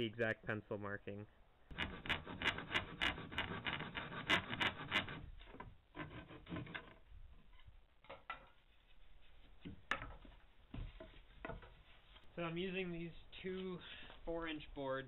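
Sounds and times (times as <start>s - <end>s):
hand saw cutting wood: 1.7s - 5.4s, 6.0s - 6.9s
wood handling: 9.4s - 12.3s.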